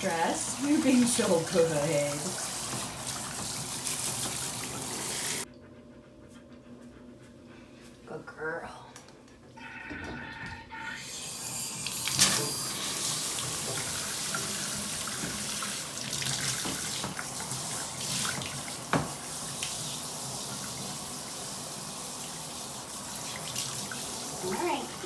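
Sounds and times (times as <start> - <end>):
shower head spraying water: 0.0 - 5.4, 11.2 - 24.9.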